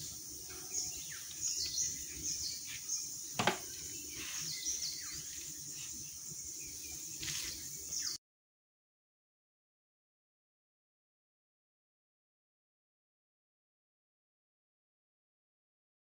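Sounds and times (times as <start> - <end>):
birds chirping: 0.0 - 8.2
insect drone: 0.0 - 8.2.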